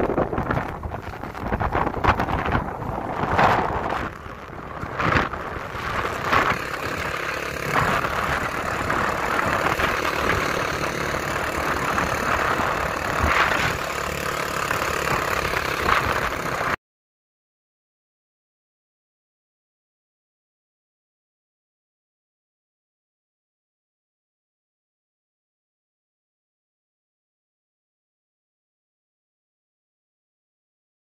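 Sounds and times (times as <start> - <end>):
wind buffeting microphone: 0.0 - 16.8.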